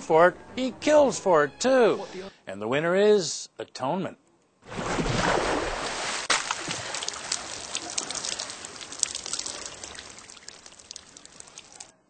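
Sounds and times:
water splashing and streaming: 0:04.7 - 0:11.9
water drips pattering: 0:06.3 - 0:11.9.

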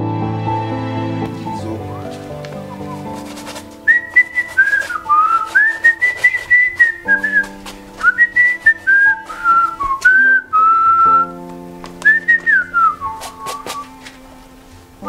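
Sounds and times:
background music of sustained chords: 0:00.0 - 0:03.9, 0:10.4 - 0:15.0
man whistling a tune: 0:03.9 - 0:11.4, 0:12.0 - 0:13.9.

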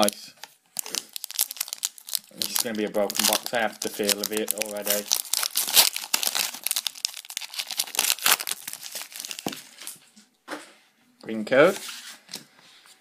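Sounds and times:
foil wrapper crinkling and tearing: 0:00.8 - 0:10.0.

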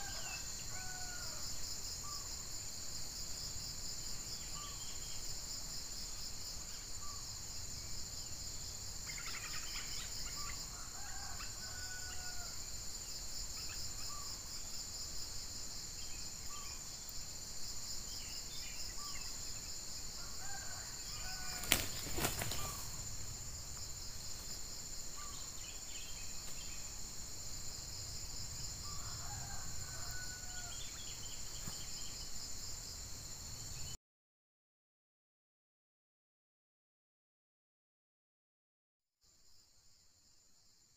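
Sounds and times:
roosters crowing: 0:00.0 - 0:01.5, 0:10.7 - 0:12.6, 0:20.2 - 0:23.1, 0:28.8 - 0:31.0
insects buzzing: 0:00.0 - 0:34.0.

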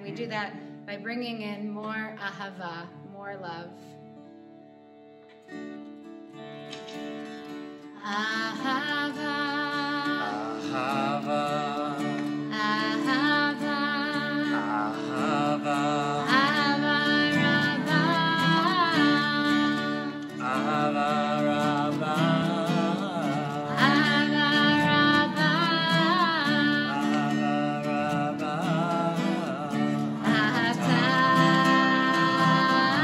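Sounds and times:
strummed acoustic guitar: 0:00.0 - 0:33.0
woman singing: 0:08.0 - 0:33.0
man singing: 0:08.1 - 0:33.0.

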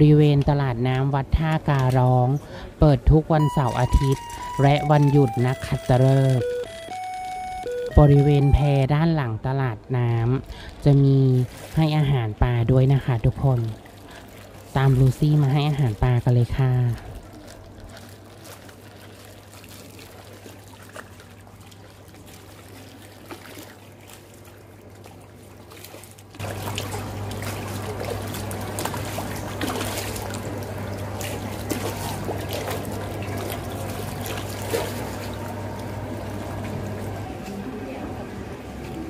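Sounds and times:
fish splashing at water surface: 0:12.9 - 0:37.7.

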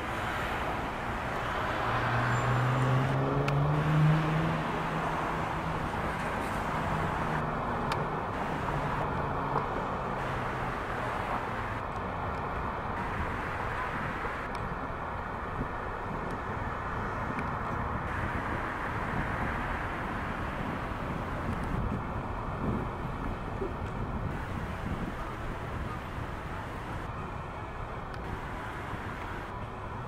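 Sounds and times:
road traffic: 0:00.0 - 0:30.0
vehicle engine passing: 0:01.3 - 0:11.8.

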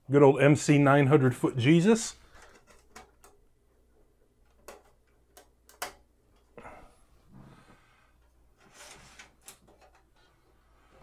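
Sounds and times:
faint scraping of handling: 0:07.4 - 0:11.0.

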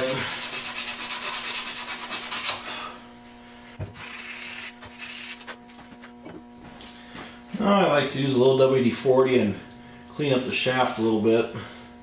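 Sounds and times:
sandpaper rubbing metal: 0:00.0 - 0:02.6, 0:04.0 - 0:05.5
steady hum: 0:00.0 - 0:12.0.

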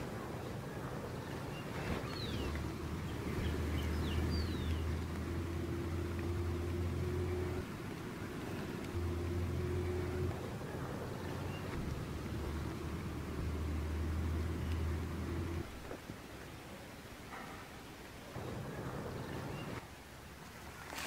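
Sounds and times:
low rumbling drone: 0:00.0 - 0:16.0.

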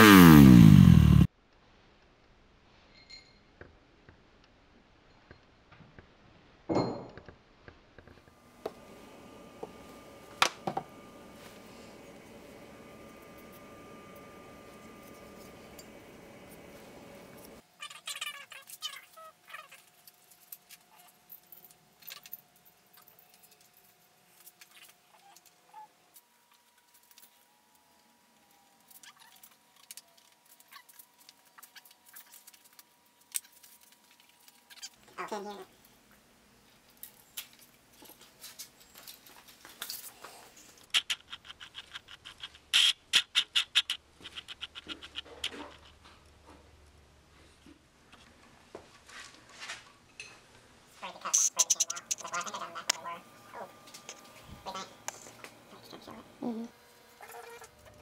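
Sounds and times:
faint steady hum: 0:07.9 - 0:58.0
rustling of parts: 0:18.1 - 0:25.6, 0:26.2 - 0:35.0.

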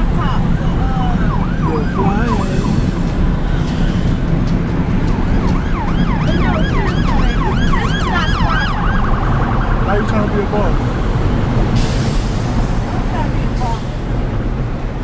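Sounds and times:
siren yelping: 0:00.0 - 0:03.2, 0:05.2 - 0:10.4
road noise inside car: 0:00.0 - 0:15.0.

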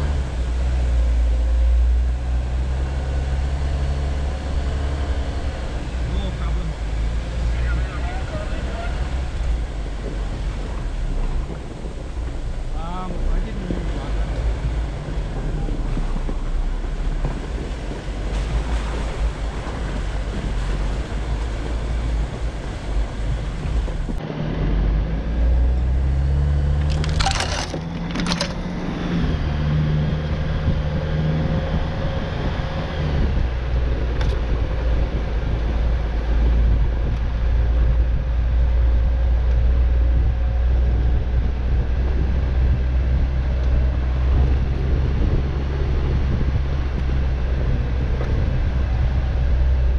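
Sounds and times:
engine and tyre rumble: 0:00.0 - 0:49.9
wind on microphone: 0:00.0 - 0:49.9
sharp cracking crunches: 0:26.8 - 0:28.6.

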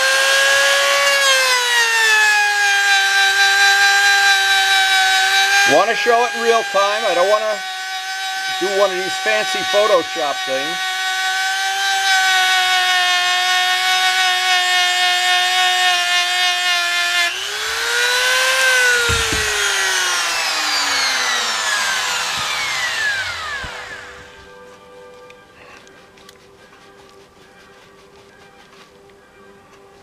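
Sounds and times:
rotary tool whining: 0:00.0 - 0:30.0.

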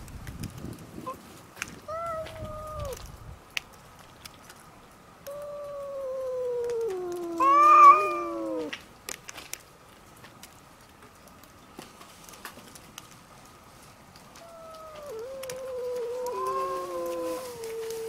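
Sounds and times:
cats yowling: 0:01.9 - 0:03.0, 0:05.3 - 0:08.8, 0:14.3 - 0:18.0.

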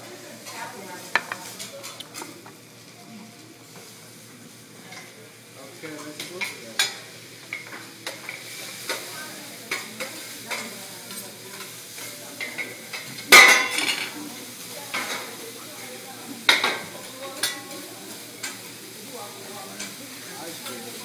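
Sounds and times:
vegetables sizzling on griddle: 0:00.0 - 0:21.0
metal utensils clacking on griddle: 0:06.0 - 0:14.2, 0:14.9 - 0:15.3, 0:16.5 - 0:18.7, 0:19.7 - 0:21.0.

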